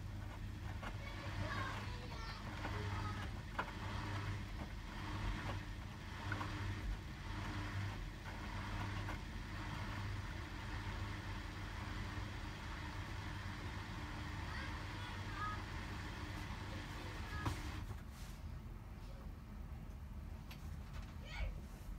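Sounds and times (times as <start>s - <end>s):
washing machine motor hum: 0.0s - 20.8s
laundry swishing in drum: 14.5s - 18.6s.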